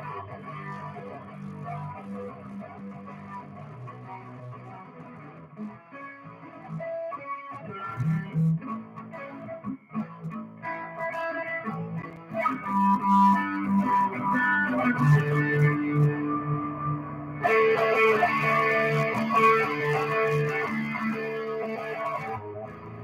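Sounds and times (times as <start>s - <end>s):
electric guitar playing: 0.0s - 23.0s.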